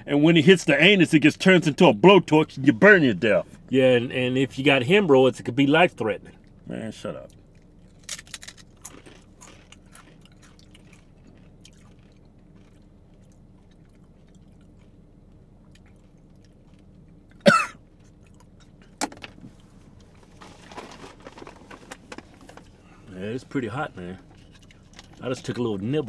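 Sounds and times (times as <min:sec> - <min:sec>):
chips being chewed: 0:07.3 - 0:17.4, 0:24.4 - 0:25.2.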